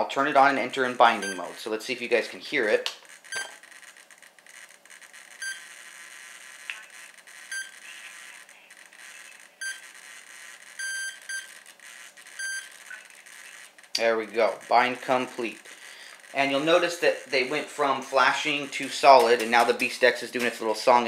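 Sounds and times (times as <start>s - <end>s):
radio transmitter beeping: 0.7s - 1.7s, 3.2s - 3.8s, 5.3s - 20.5s.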